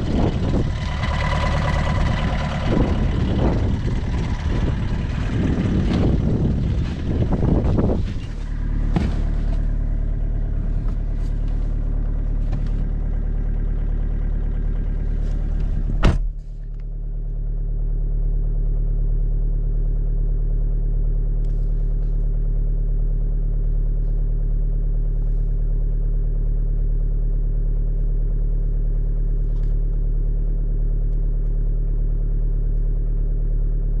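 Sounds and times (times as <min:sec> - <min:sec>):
diesel engine idling: 0:00.0 - 0:34.0
sharp thump: 0:08.8 - 0:09.6, 0:15.6 - 0:16.4.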